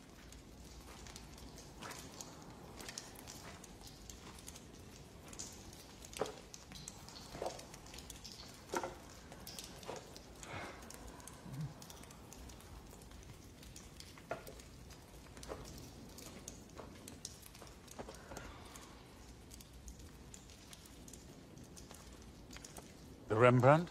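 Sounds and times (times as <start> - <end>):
footsteps on charred debris: 0.0 - 10.4, 13.0 - 18.5
faint steady hiss: 0.0 - 23.9.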